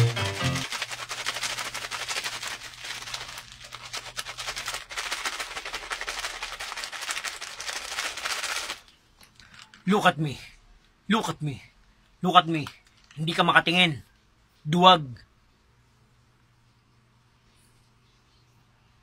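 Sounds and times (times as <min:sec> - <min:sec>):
music: 0:00.0 - 0:00.7
plastic snack packet crinkling: 0:00.0 - 0:09.9, 0:12.5 - 0:13.4.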